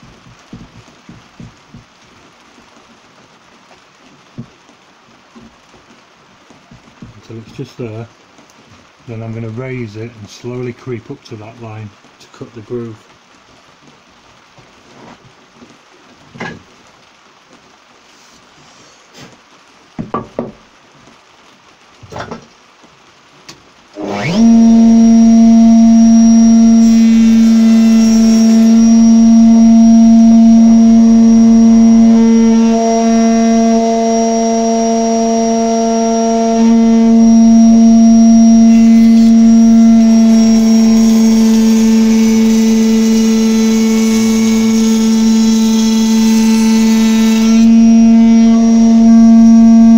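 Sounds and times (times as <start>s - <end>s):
router whining: 24.0s - 49.9s.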